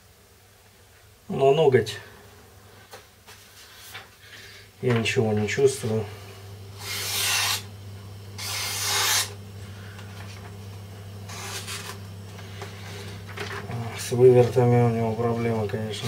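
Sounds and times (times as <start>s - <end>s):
low hum: 4.8s - 16.0s
knife slicing paper: 8.4s - 9.4s, 11.3s - 12.0s.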